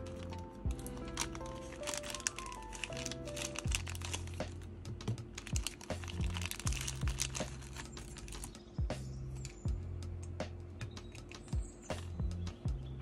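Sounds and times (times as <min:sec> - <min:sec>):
plastic bags crinkling: 0:00.0 - 0:08.6
music with bass and beat: 0:00.0 - 0:13.0.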